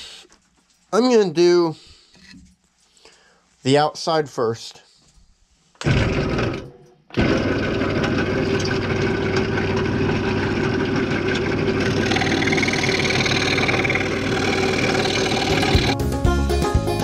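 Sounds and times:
scroll saw motor hum: 7.2 - 16.0
saw blade rasping through wood: 9.6 - 16.0.

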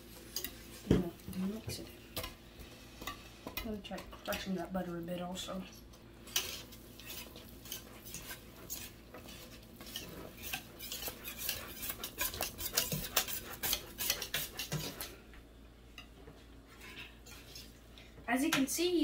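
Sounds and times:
whisk scraping metal pot: 0.0 - 1.6, 6.3 - 15.2.

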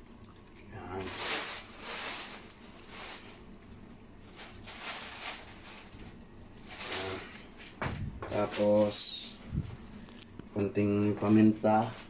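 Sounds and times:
lemon juice squishing and dripping: 0.0 - 0.8, 2.4 - 4.6.

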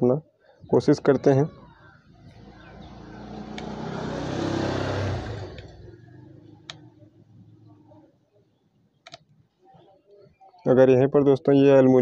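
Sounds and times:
vehicle engine passing by: 1.5 - 8.0.

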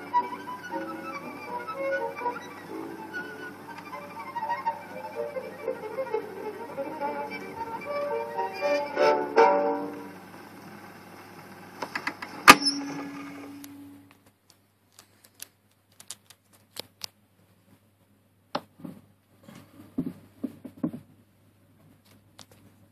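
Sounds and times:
violin chord on gramophone: 0.0 - 14.1.

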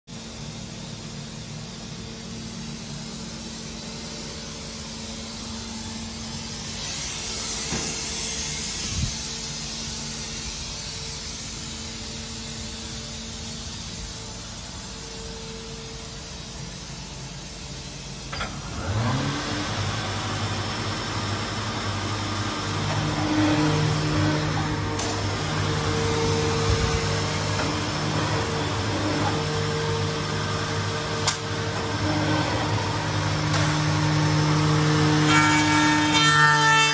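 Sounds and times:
workshop hum: 0.1 - 36.9
electric motor running hum: 5.4 - 36.2
second motor running: 18.3 - 35.3.

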